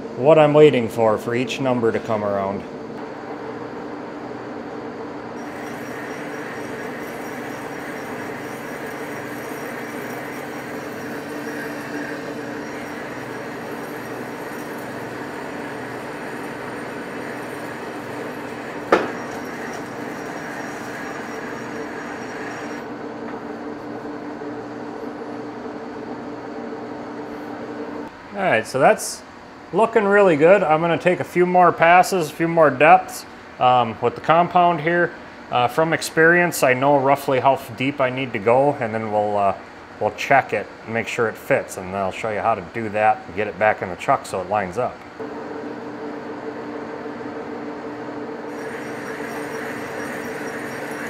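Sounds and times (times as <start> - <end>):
lathe humming with gear tones: 5.2 - 23.0, 45.2 - 51.0.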